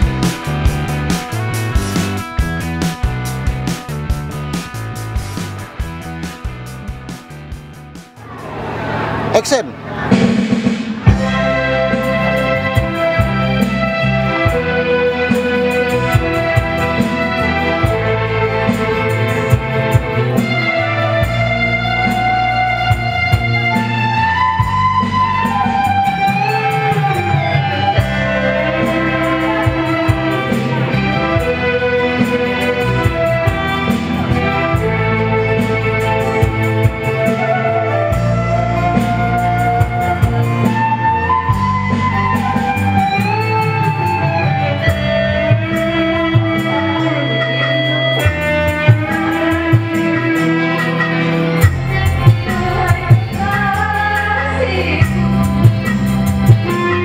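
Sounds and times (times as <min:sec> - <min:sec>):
guitar-led backing music: 0:00.0 - 0:57.0
person singing into microphone: 0:46.3 - 0:55.6.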